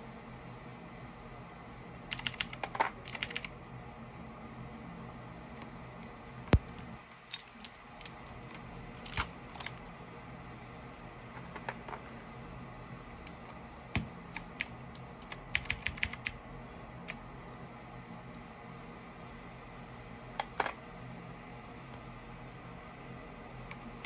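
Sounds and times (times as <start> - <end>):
mechanical keyboard keys clicking: 2.1 - 3.5, 14.0 - 16.4.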